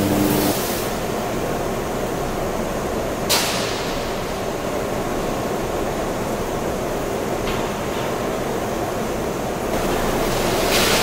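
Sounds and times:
furnace arcs crackling: 0:00.0 - 0:00.8.

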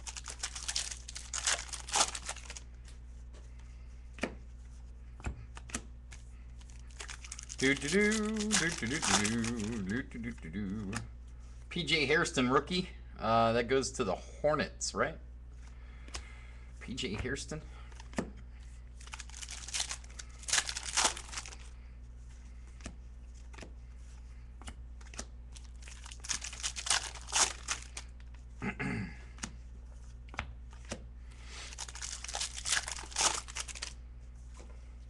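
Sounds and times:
trading cards rustling and clicking: 0:00.0 - 0:03.0, 0:05.2 - 0:11.1, 0:19.0 - 0:21.7, 0:24.6 - 0:28.4, 0:31.6 - 0:34.0
steady low hum: 0:00.0 - 0:35.0.

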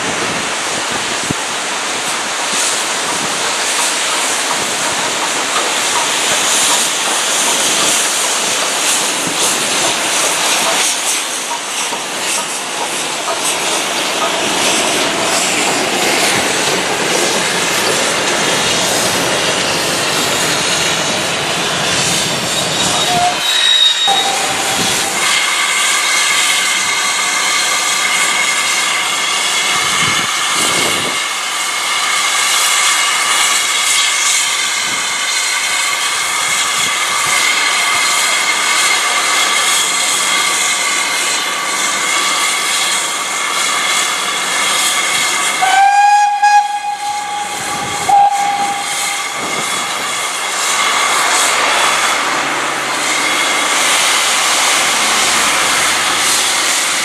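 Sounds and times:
steam locomotive hissing: 0:00.0 - 0:57.0
steam whistle: 0:22.7 - 0:25.5, 0:45.5 - 0:49.9.

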